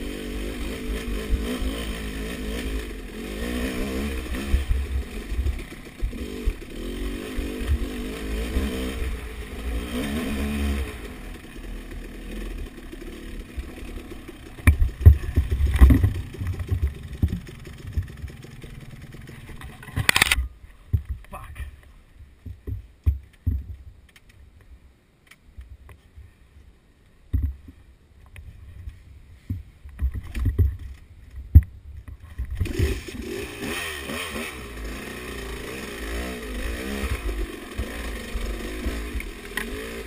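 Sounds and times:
dirt bike engine revving: 0:00.0 - 0:20.3, 0:32.6 - 0:40.0.

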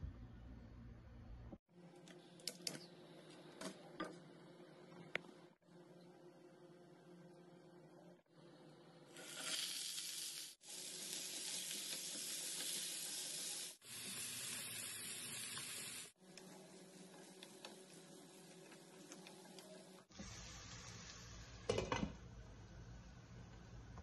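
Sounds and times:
food sizzling in a hot pan: 0:09.1 - 0:22.1.

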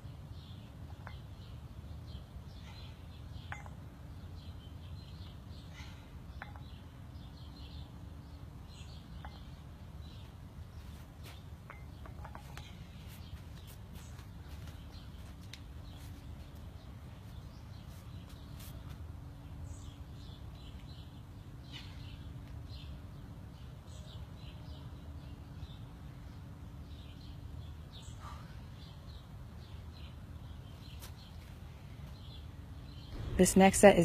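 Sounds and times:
small birds chirping: 0:00.0 - 0:34.0
low steady rumble: 0:32.5 - 0:34.0.

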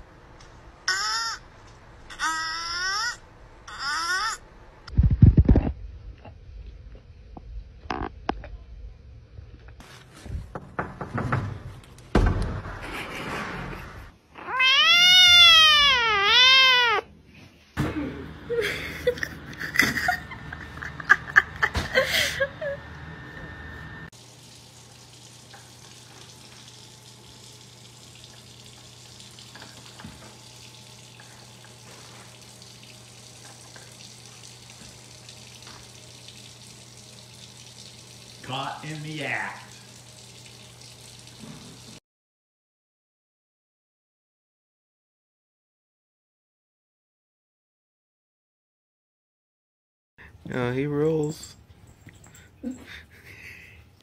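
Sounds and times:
cat meowing: 0:14.4 - 0:17.1.

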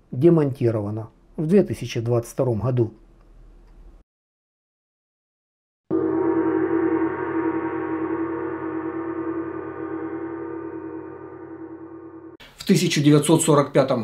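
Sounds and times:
gong-like ringing tone: 0:05.9 - 0:12.4.

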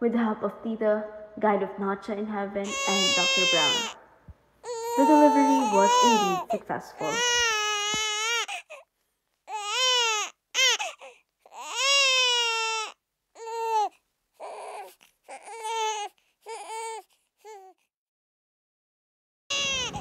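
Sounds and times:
newborn baby crying: 0:02.6 - 0:04.0, 0:04.6 - 0:17.9, 0:19.5 - 0:20.0.

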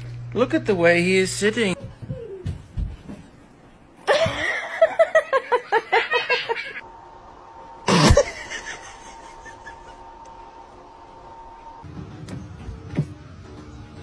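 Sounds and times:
person laughing: 0:04.0 - 0:06.8, 0:07.9 - 0:10.2.

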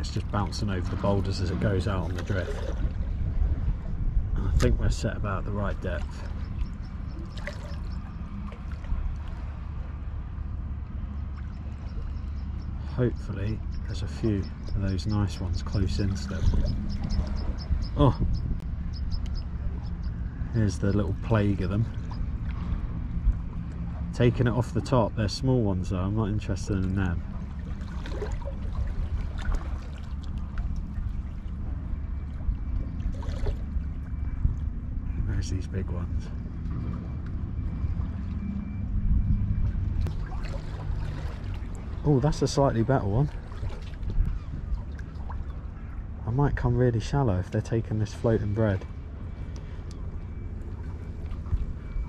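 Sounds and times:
small splashes: 0:00.0 - 0:03.2, 0:05.7 - 0:09.8, 0:26.6 - 0:31.6, 0:32.2 - 0:34.0, 0:40.0 - 0:45.8
sea water lapping among boulders: 0:00.0 - 0:10.0, 0:20.7 - 0:34.3, 0:40.0 - 0:45.9
steady low rumble: 0:00.0 - 0:52.0.

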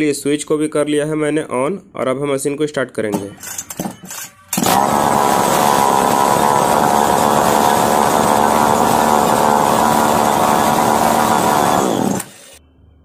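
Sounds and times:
chainsaw engine running: 0:04.6 - 0:12.6.

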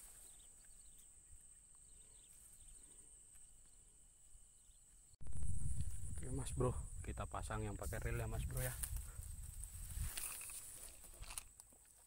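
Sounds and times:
high insect drone: 0:00.1 - 0:09.1.

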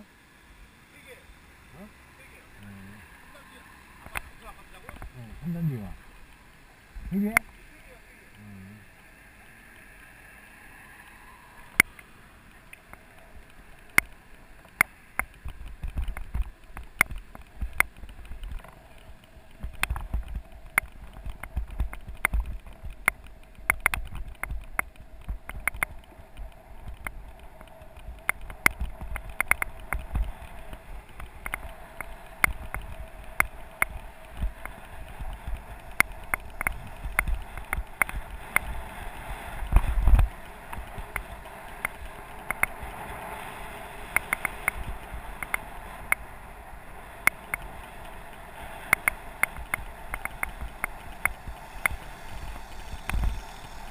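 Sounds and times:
bike clicks and rattles: 0:12.8 - 0:53.9
low rumble: 0:50.6 - 0:53.9.

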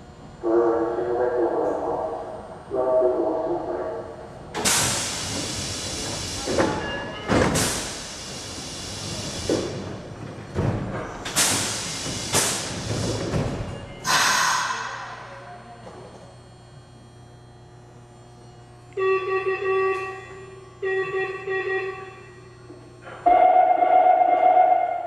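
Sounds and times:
train air hissing bursts: 0:04.6 - 0:06.8, 0:07.5 - 0:09.7, 0:11.3 - 0:13.2, 0:14.0 - 0:15.1.

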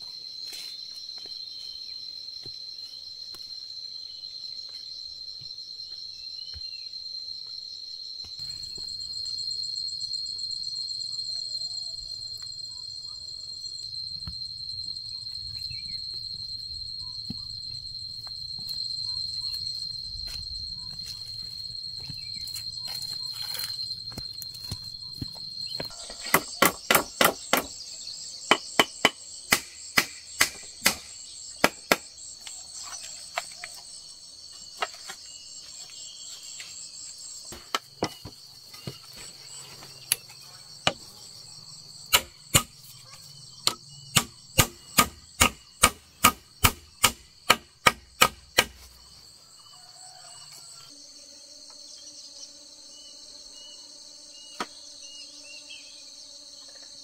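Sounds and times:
insects chirring: 0:00.0 - 0:57.0
hand tool striking wood: 0:22.9 - 0:27.7, 0:28.5 - 0:32.5, 0:42.1 - 0:42.8, 0:43.6 - 0:49.0.

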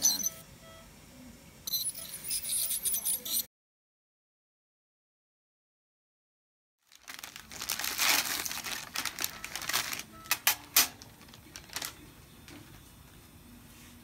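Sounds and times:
packaging crinkling and rustling: 0:06.8 - 0:12.6.

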